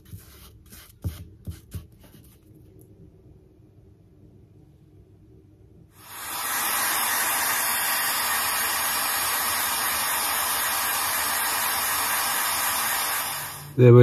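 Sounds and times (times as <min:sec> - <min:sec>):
air blower rushing hiss: 0:05.9 - 0:14.0.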